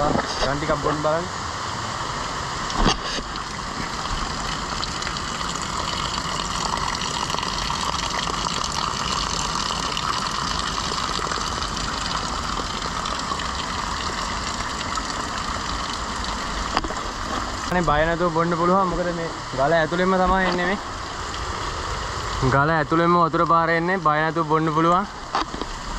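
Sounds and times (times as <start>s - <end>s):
water pouring onto rocks: 2.8s - 21.6s.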